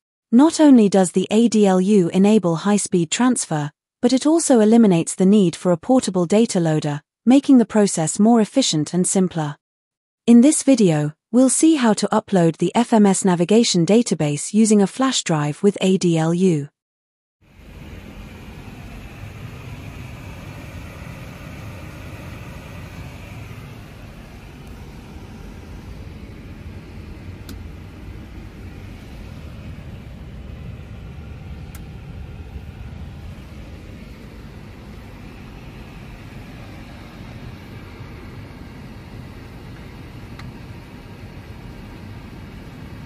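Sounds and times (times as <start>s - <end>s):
airliner cockpit rumble: 17.5s - 43.0s.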